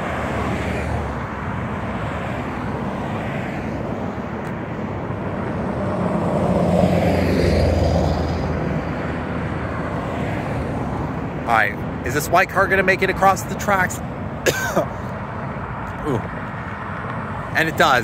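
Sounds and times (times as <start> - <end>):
car passing close: 0.0 - 11.6
road traffic passing: 0.0 - 18.0.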